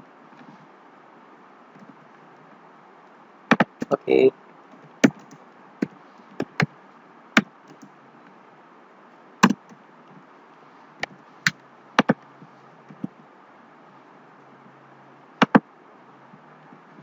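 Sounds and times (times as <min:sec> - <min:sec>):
faint steady hiss: 0:00.0 - 0:17.0
keyboard keys clicking: 0:04.8 - 0:05.4.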